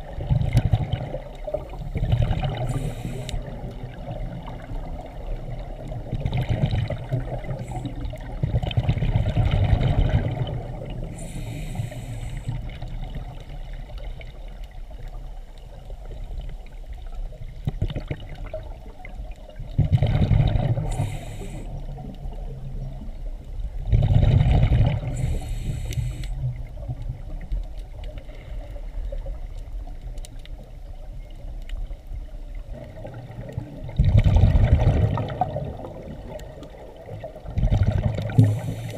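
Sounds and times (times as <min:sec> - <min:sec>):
exhaled bubbles underwater: 0:00.0 - 0:38.9
regulator inhalation hiss: 0:02.7 - 0:03.5, 0:11.1 - 0:12.6, 0:20.8 - 0:21.8, 0:25.1 - 0:26.4, 0:38.4 - 0:38.9.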